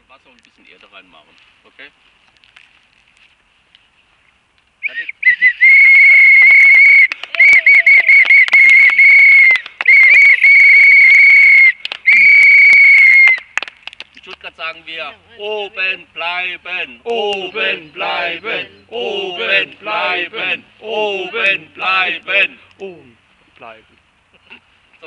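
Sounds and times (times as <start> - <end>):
shrill whistle blasts: 4.8 - 13.5.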